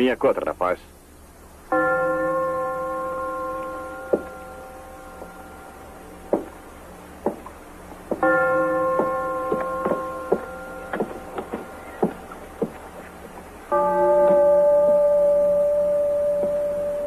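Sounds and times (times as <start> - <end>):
ringing bell-like tone: 1.7 - 6.1, 8.2 - 12.1, 13.7 - 17.0
boots on wooden floor: 4.1 - 4.4, 6.2 - 15.5.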